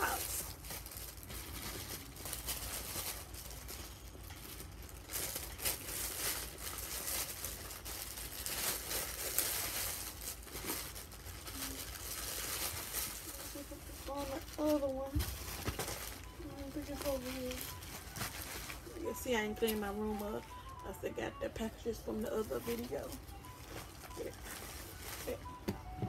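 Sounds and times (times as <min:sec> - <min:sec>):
plastic bag crinkling: 0:00.0 - 0:26.0.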